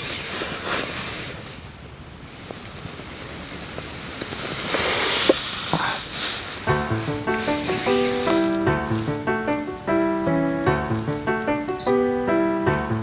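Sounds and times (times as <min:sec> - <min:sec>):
rushing rustling in a tent: 0:00.0 - 0:09.3.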